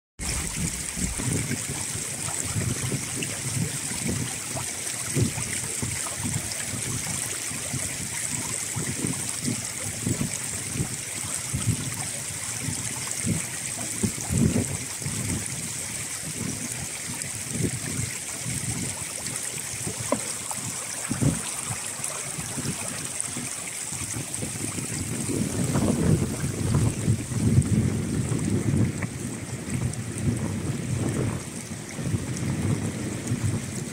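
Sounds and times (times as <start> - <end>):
stream flowing over pebbles: 0.2 - 33.9.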